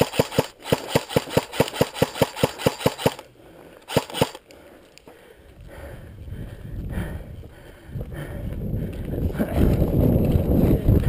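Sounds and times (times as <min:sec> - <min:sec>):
airsoft gun shots: 0:00.0 - 0:03.2, 0:03.9 - 0:04.4.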